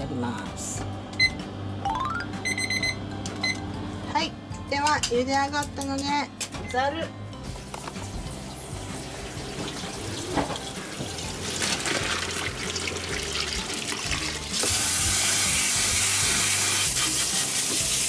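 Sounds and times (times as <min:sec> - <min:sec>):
tap water running: 0:07.6 - 0:18.0
water poured into steel sink: 0:11.0 - 0:18.0.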